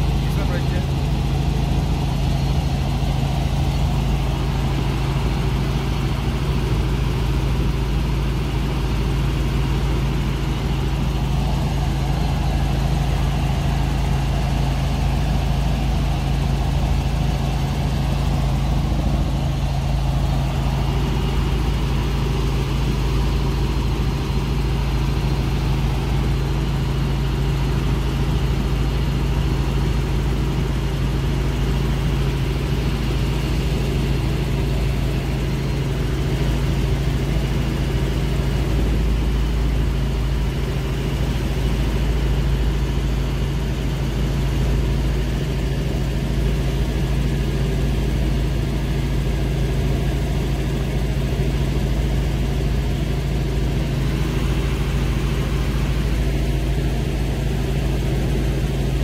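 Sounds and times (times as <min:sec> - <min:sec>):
helicopter rotor and engine drone: 0:00.0 - 0:59.0.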